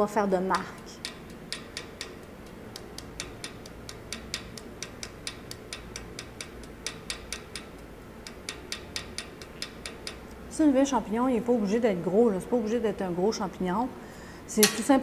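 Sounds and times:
small hammer tapping metal: 0.5s - 10.5s, 14.6s - 14.9s.

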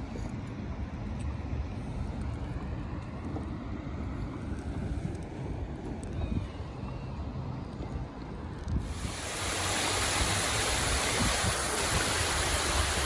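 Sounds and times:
waterfall rushing splash: 8.8s - 13.0s.

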